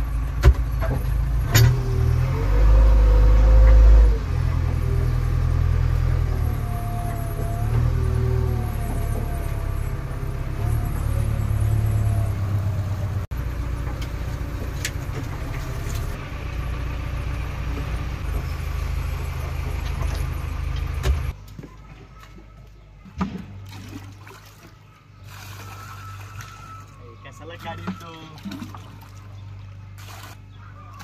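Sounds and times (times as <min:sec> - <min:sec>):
diesel engine running: 0:00.0 - 0:21.5.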